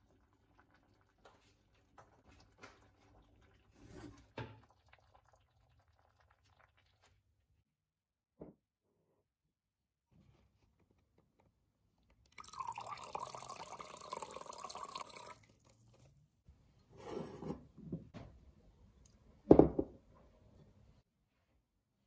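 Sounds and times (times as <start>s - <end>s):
wine pouring into a jug: 12.3s - 16.1s.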